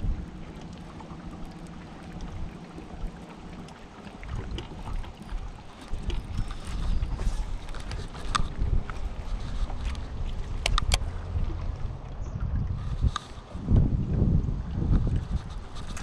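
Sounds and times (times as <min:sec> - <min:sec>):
steady low hum: 0:00.0 - 0:16.0
water lapping at boat hull: 0:00.0 - 0:16.0
wind buffeting microphone: 0:00.0 - 0:16.0
small clicks: 0:10.6 - 0:11.1.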